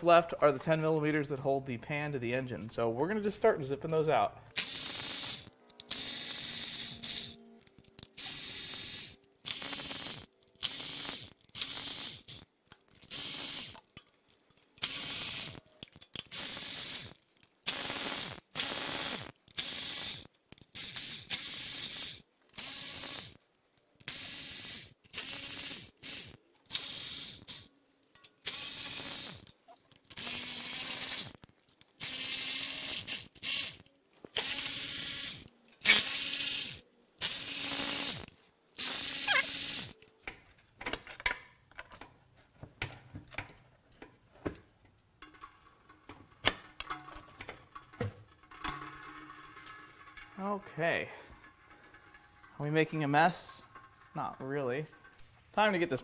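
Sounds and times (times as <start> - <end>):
electric ratchet spinning bolts: 4.5 - 13.9, 14.8 - 23.4, 24.0 - 27.7, 28.4 - 31.4, 32.0 - 40.0, 45.2 - 50.4.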